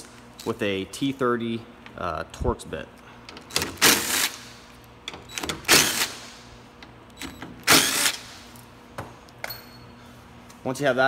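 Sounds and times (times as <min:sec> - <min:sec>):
power tool bursts: 0:05.4 - 0:06.3, 0:07.6 - 0:08.4.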